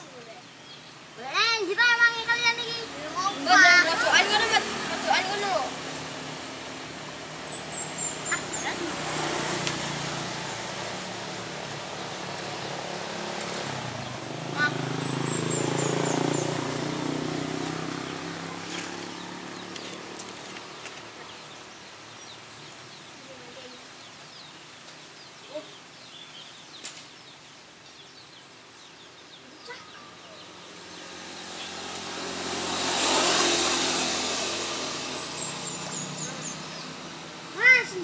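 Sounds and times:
vehicle passing: 0.9 - 23.1, 29.6 - 38.0
engine: 3.0 - 21.6, 30.6 - 38.0
bird chirps: 7.4 - 9.4, 17.7 - 34.1.

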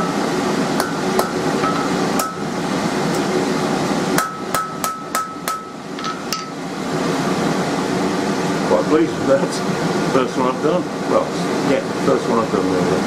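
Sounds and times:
hammer striking steel on anvil: 0.8 - 2.5, 4.2 - 6.6.

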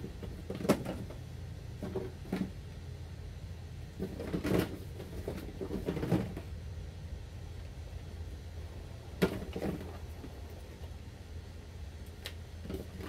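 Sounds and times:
low steady hum: 0.0 - 13.0
knocks and clatters of handling: 0.1 - 1.2, 1.8 - 2.6, 4.0 - 6.5, 9.2 - 10.3.

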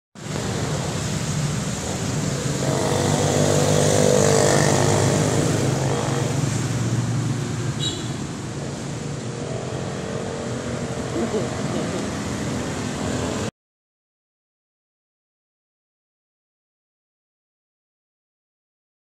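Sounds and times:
motorcycle engines running: 0.2 - 13.5
motorcycle tricycle passing: 0.2 - 13.5
street traffic: 0.2 - 13.5.

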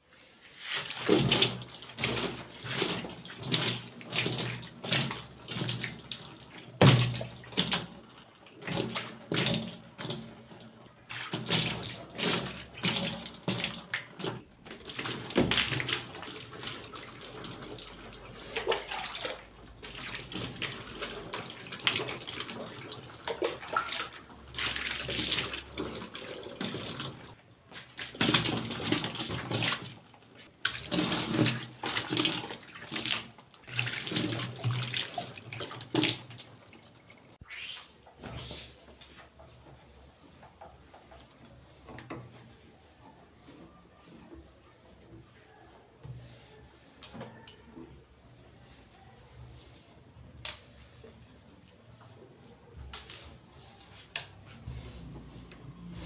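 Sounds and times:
water poured from a jug: 0.5 - 38.8
water splashing: 0.5 - 39.0.

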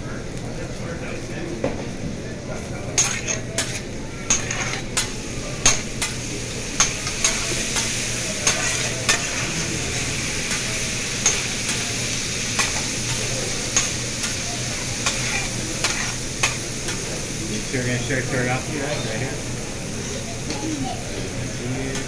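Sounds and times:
chicken sizzling on griddle: 2.7 - 22.0
spatula clinking on steel: 3.0 - 6.1, 6.8 - 9.5, 10.5 - 11.7, 12.6 - 14.4, 15.0 - 16.6.

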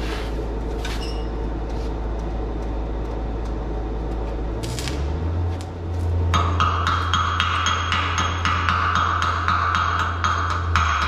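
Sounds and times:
welding machine humming: 0.0 - 10.9
welding arc crackling: 4.5 - 11.0.

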